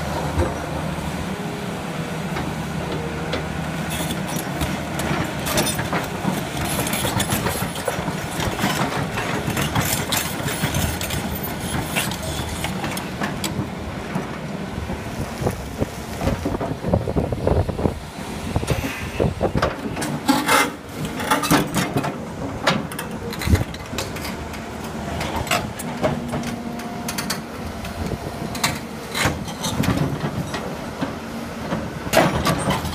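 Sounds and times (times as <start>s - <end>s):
diesel engine running under load: 0.0s - 32.9s.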